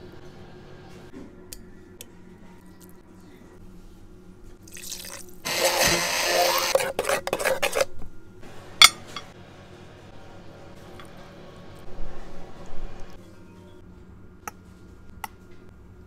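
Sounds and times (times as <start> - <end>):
blender whirring: 5.5 - 7.8.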